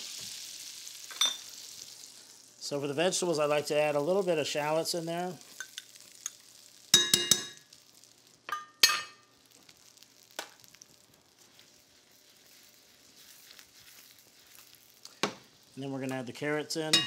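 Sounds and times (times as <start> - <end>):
shallots sizzling in butter: 0.0 - 17.0
metal spoon clinking against pan: 7.0 - 7.6, 8.5 - 9.2.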